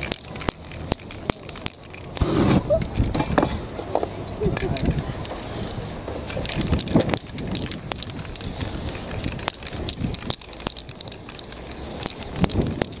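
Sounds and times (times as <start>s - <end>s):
spray-paint can hissing: 0.0s - 2.9s, 5.6s - 13.0s
sharp clicks and crackles: 0.0s - 3.7s, 4.3s - 13.0s.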